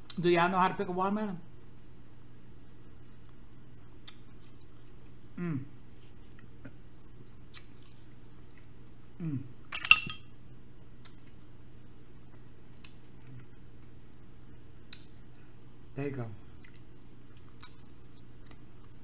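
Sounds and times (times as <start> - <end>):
person humming while eating: 5.3 - 5.8, 9.2 - 9.6
metal fork clinking on dish: 9.8 - 10.3.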